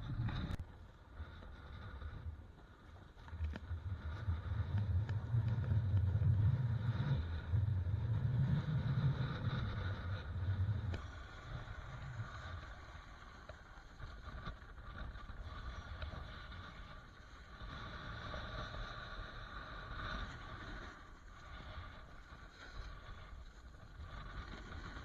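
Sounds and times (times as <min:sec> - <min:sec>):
wind rumbling on microphone: 0:00.0 - 0:25.0.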